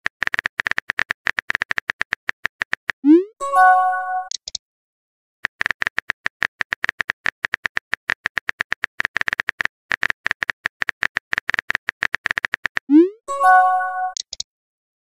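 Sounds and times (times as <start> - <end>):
rapid high clicks: 0.0 - 3.0, 5.4 - 12.9.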